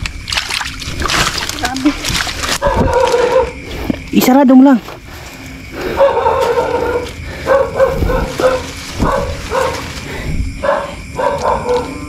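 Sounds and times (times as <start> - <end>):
dull low thuds: 7.8 - 9.5.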